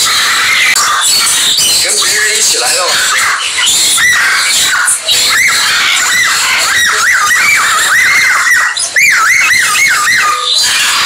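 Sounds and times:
birds chirping: 0.0s - 11.0s
bird whistling rising and falling notes: 5.2s - 11.0s.

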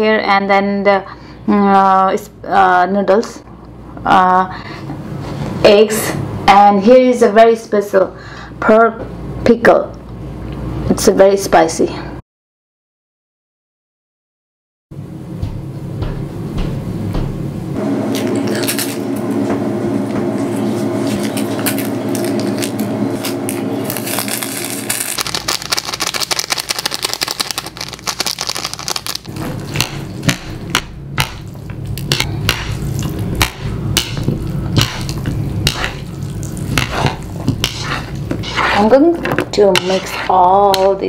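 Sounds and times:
packet tearing and crinkling: 21.2s - 29.7s.

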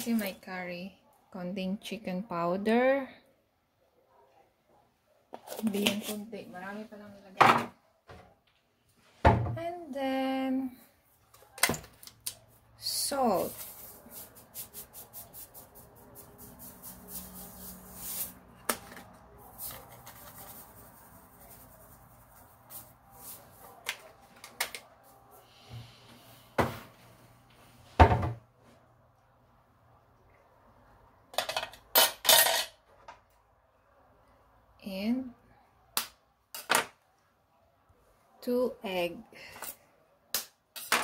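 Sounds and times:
kitchen clinks and knocks: 31.4s - 32.8s.

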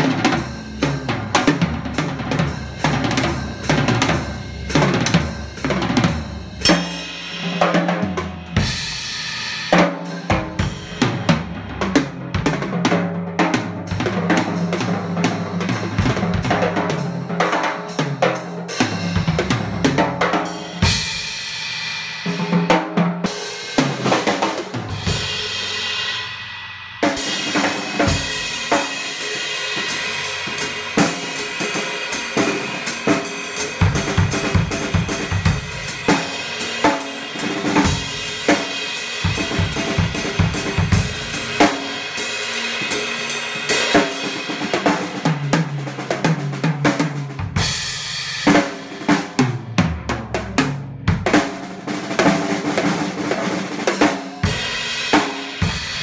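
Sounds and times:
drum kit groove: 0.0s - 56.0s.

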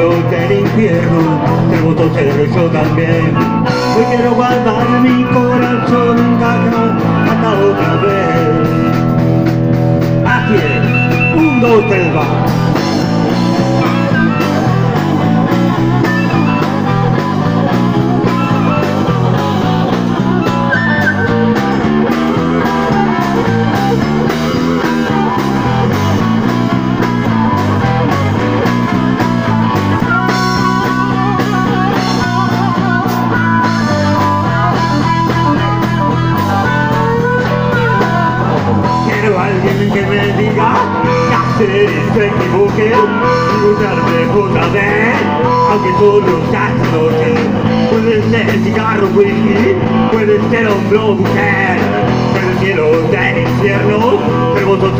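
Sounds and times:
drums: 0.0s - 54.9s
electric guitars: 0.0s - 54.9s
walking bass line: 0.0s - 54.9s
harmonica: 3.0s - 42.0s.

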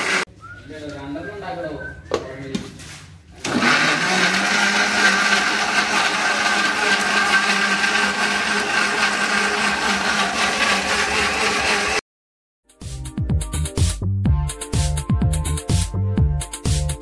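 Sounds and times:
mixer grinder running: 0.0s - 0.3s, 3.4s - 12.0s.

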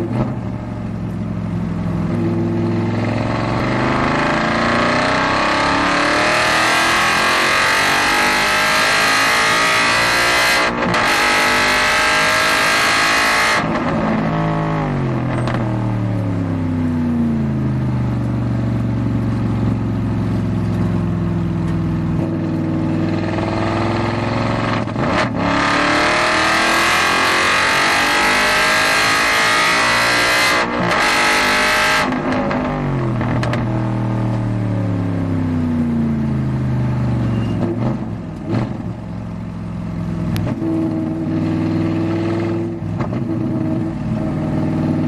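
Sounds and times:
race car engine revving: 2.1s - 15.6s, 22.2s - 33.7s.

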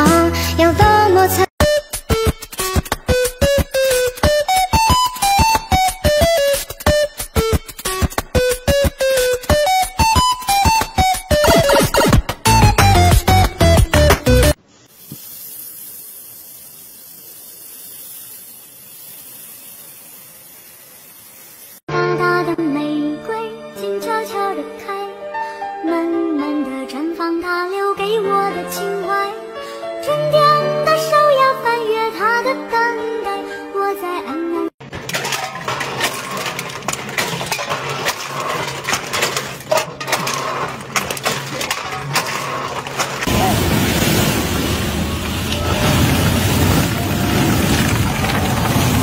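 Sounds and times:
spraying hiss: 14.7s - 21.9s
metal cans clinking and crushing: 34.8s - 43.4s.

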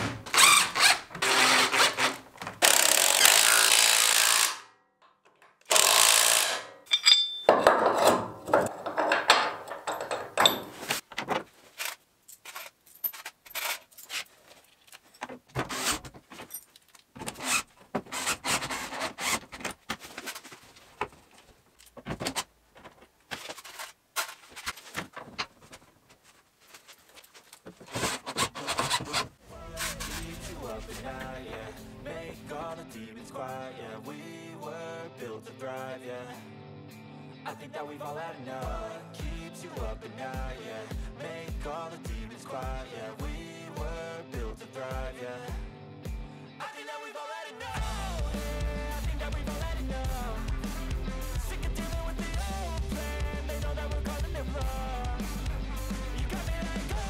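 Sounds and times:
cordless drill drilling into plastic: 0.3s - 4.6s, 5.7s - 6.6s
hardware clicks and knocks: 5.0s - 5.8s, 6.6s - 11.5s.

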